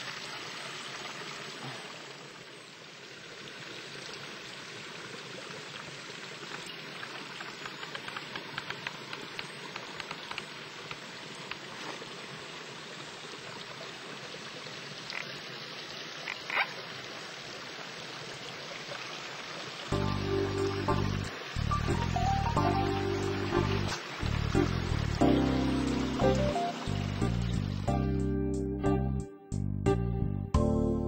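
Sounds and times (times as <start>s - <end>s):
forest stream rushing: 0.0s - 28.2s.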